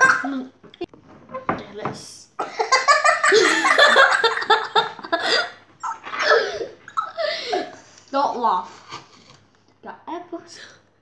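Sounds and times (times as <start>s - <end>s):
children laughing: 0.0s - 0.5s, 2.4s - 7.8s.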